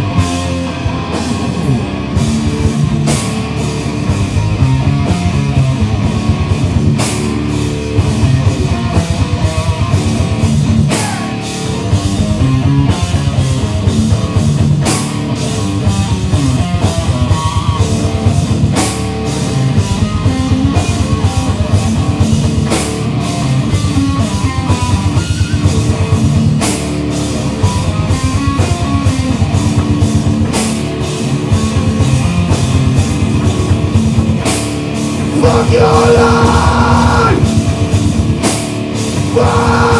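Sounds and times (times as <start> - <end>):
rock band playing: 0.0 - 39.9.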